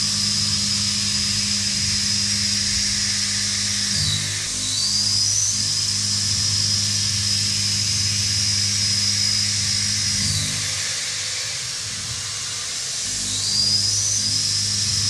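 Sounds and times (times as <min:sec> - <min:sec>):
low spindle hum: 0:00.0 - 0:10.8
end mill cutting steel whine: 0:00.0 - 0:15.0.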